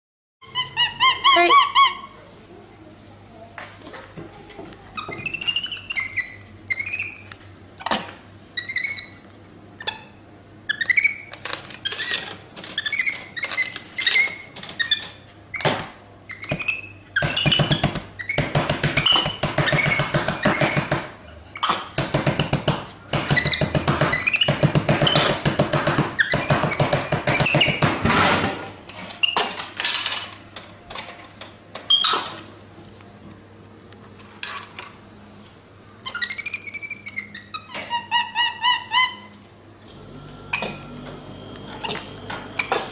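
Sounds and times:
monkey squeaking: 0.4 - 2.2, 5.0 - 8.0, 8.6 - 15.6, 16.3 - 20.9, 23.3 - 25.4, 36.0 - 39.4
sharp knocks and clicks: 17.2 - 28.4.

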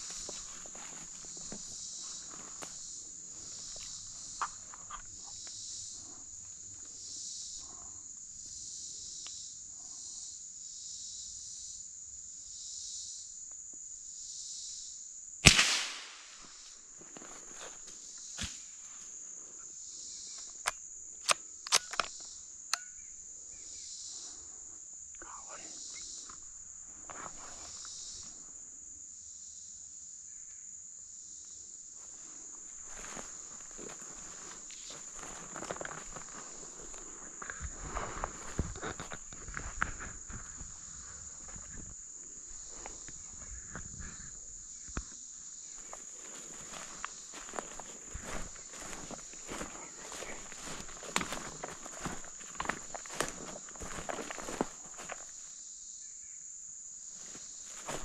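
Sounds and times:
footsteps crunching: 0.0 - 5.4, 16.4 - 19.1, 32.0 - 55.4, 57.2 - 58.0
insects droning: 0.0 - 58.0
sharp clicks: 20.6 - 22.9.

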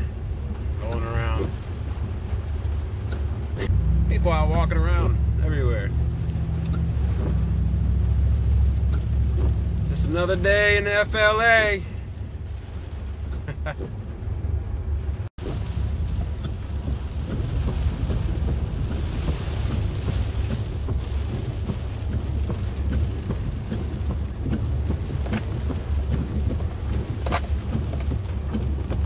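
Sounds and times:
car and wind rumble: 0.0 - 29.0
rain hissing on car: 0.0 - 29.0.

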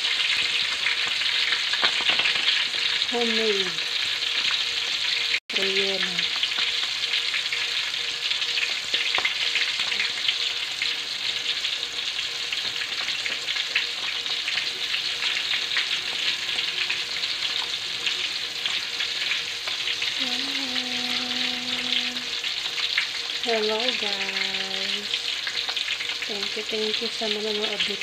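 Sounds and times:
fish sizzling in hot oil: 0.0 - 28.0.

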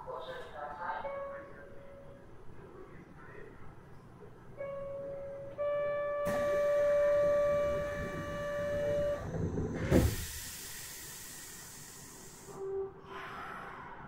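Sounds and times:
train door buzzer: 4.6 - 11.5
air hiss: 9.9 - 12.6.

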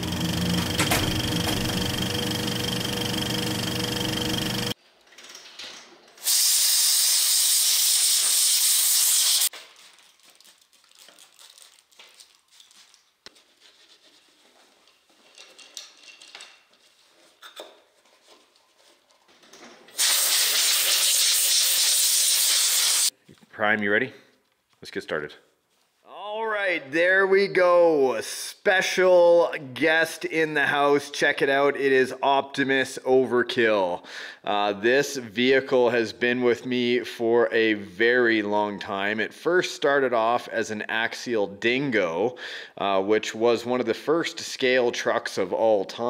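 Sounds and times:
compressed air blow gun hissing: 6.2 - 9.5, 20.0 - 23.1.

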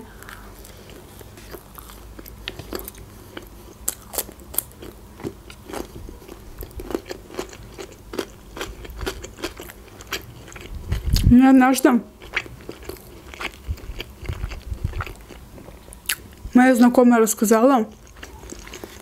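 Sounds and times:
chewing bread with clicks: 1.5 - 11.3, 12.2 - 16.3, 17.9 - 19.0.

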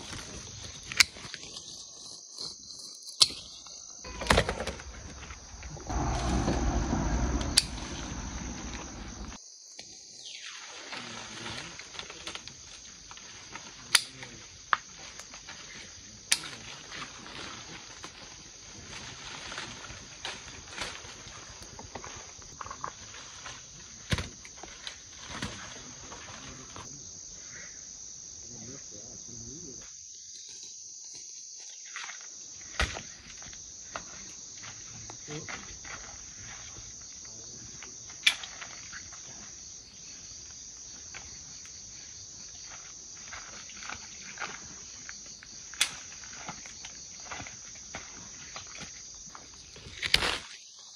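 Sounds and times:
insects chirring: 0.0 - 50.9
leaves rustling: 4.1 - 9.4, 10.3 - 26.8, 40.1 - 50.9
fruit snapping off branches: 45.8 - 46.1.

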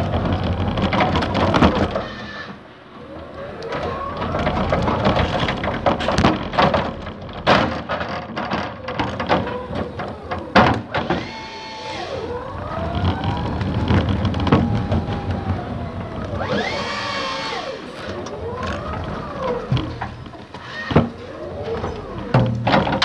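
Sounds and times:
rattling and sharp knocks: 3.6 - 11.4, 12.1 - 23.0
electric motor whining: 9.4 - 22.7.

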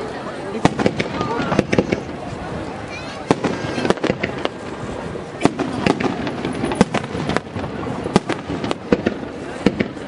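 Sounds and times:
firework shells bursting: 5.4 - 10.0.

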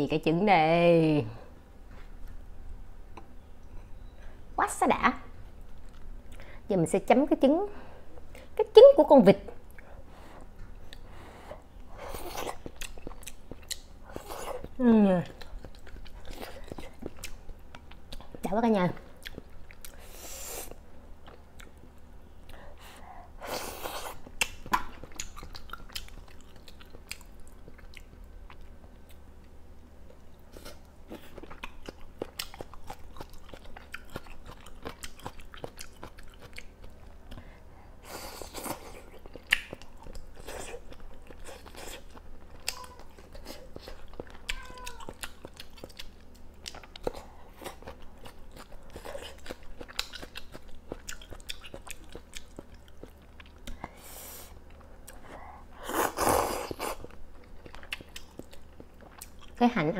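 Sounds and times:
person chewing: 11.7 - 18.4, 19.1 - 22.7, 23.4 - 59.6.

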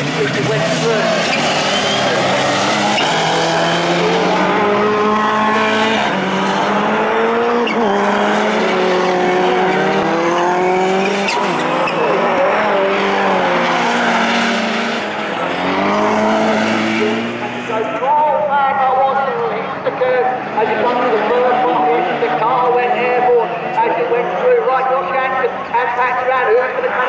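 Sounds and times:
racing car engines accelerating: 0.0 - 27.0.

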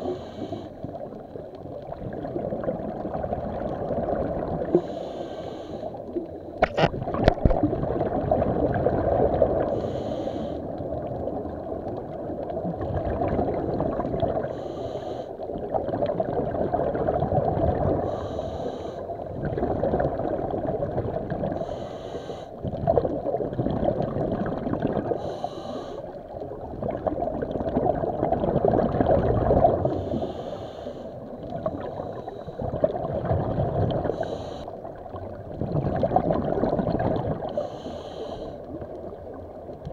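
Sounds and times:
breathing through diving gear: 0.0 - 0.8, 4.7 - 6.0, 9.6 - 10.7, 14.4 - 15.4, 18.0 - 19.2, 21.5 - 22.6, 25.0 - 26.2, 29.8 - 32.9, 34.0 - 34.8, 37.5 - 38.8
low rumble of water: 0.0 - 39.9.

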